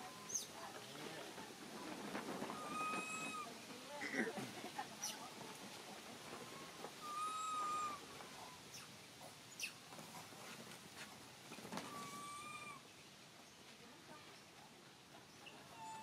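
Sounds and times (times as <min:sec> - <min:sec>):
macaque coo calls: 0:02.6 - 0:04.3, 0:07.0 - 0:08.9, 0:11.8 - 0:12.8.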